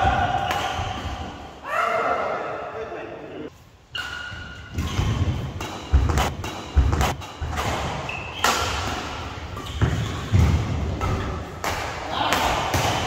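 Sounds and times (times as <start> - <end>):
shoe squeaks: 3.9 - 5.4, 8.0 - 8.6, 9.5 - 10.4
rackets hitting shuttlecock: 4.0 - 13.0.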